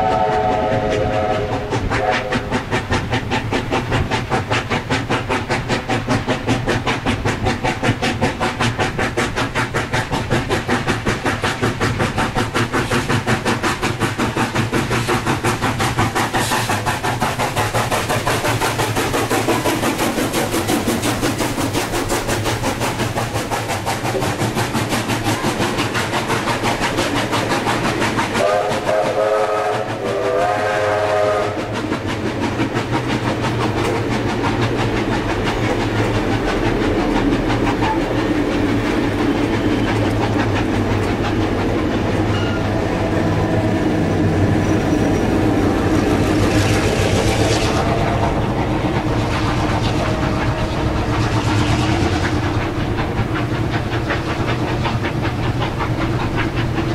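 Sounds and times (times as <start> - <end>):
train whistle chord: 0.0 - 2.5, 28.4 - 31.7
diesel locomotive engine hum: 0.0 - 56.9
train wheels clicking over rail joints: 0.0 - 56.9.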